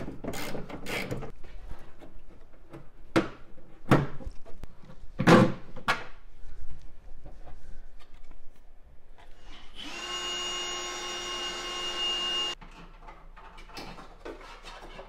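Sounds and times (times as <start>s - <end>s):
cordless drill boring sheet metal: 9.7s - 12.6s.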